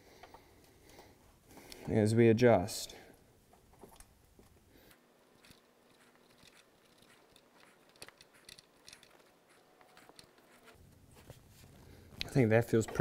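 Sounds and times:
faint metal clicks and scrapes: 0:03.5 - 0:13.0.

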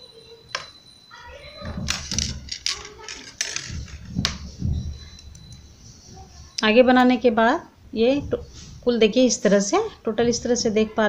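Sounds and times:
rustling: 0:00.5 - 0:06.6.

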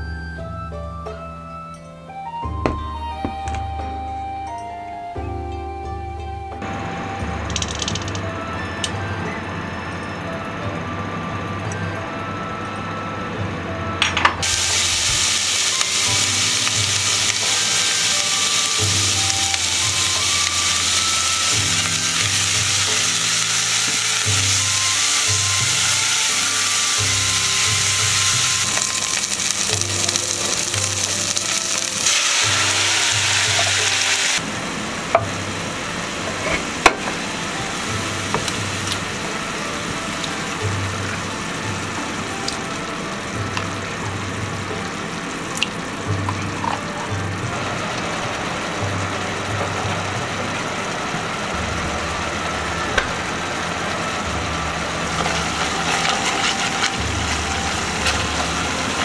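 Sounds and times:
background music: 0:00.0 - 0:59.0
onions sizzling in oil: 0:14.4 - 0:59.0.

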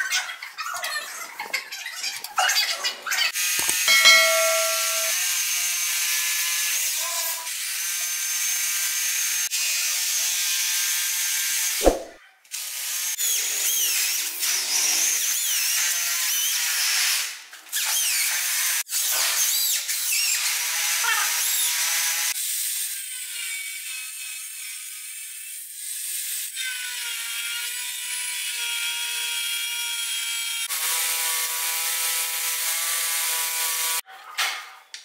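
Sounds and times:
angle grinder grinding metal: 0:03.4 - 0:05.2.

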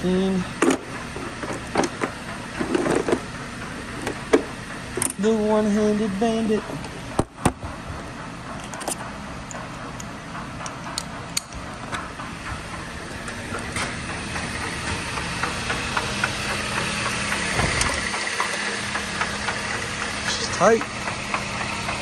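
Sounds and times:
car engine idling: 0:00.0 - 0:22.0
metal tools clinking: 0:08.6 - 0:09.8.

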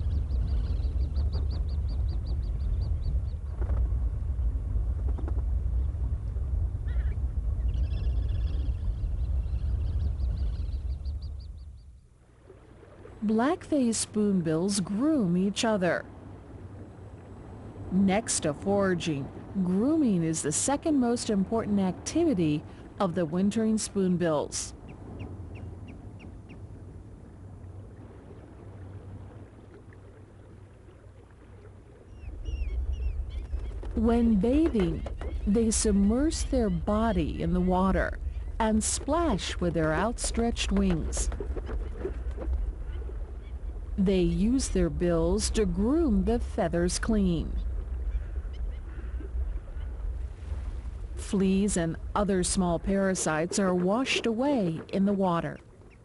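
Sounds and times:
birds calling: 0:00.0 - 0:03.7, 0:06.8 - 0:12.1, 0:24.8 - 0:26.8, 0:31.9 - 0:38.6, 0:47.6 - 0:50.1
steady low rumble: 0:00.0 - 0:30.9, 0:31.7 - 0:56.0.

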